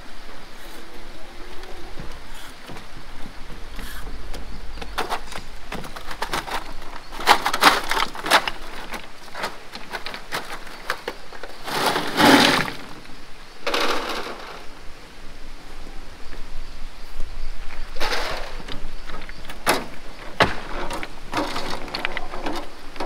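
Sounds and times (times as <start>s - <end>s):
stones clacking: 4.3s - 14.7s, 18.0s - 23.0s.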